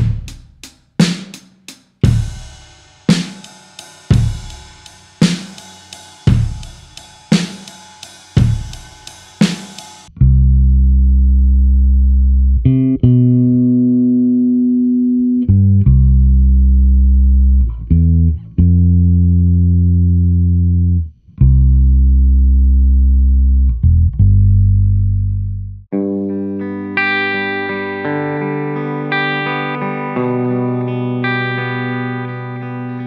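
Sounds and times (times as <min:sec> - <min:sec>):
electric bass guitar notes: 0:04.0 - 0:07.3, 0:10.1 - 0:33.0.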